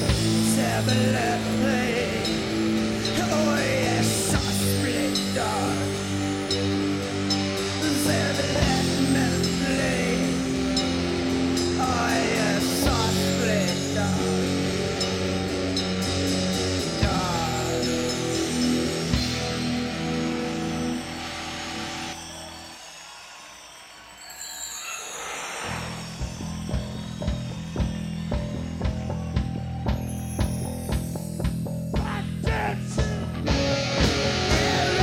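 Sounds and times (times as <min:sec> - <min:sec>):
electric guitar melody: 0:00.0 - 0:22.1, 0:33.0 - 0:35.0
live rock band music: 0:00.0 - 0:22.2, 0:25.9 - 0:35.0.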